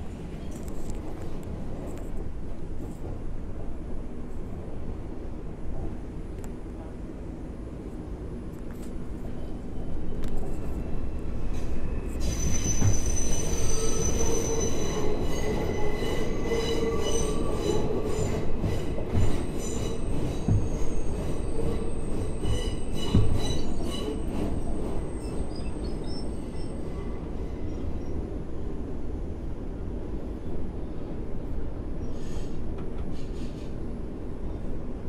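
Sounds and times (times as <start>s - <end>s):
train low rumble: 0.0s - 35.0s
train wheels squealing on rails: 8.7s - 28.6s, 31.9s - 33.9s
train clunks: 11.4s - 26.1s, 32.2s - 33.8s.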